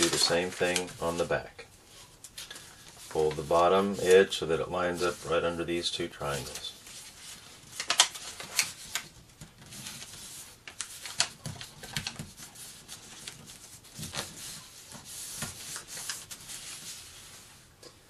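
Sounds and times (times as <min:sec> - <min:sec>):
paper rustling and crinkling: 0:00.0 - 0:17.6
fingers rubbing paper crease: 0:02.7 - 0:05.6.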